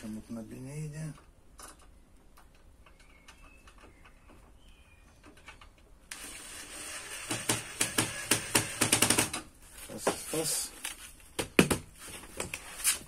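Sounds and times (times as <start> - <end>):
faint high chirps: 2.8 - 5.6
cordless drill driving a screw: 6.1 - 9.4.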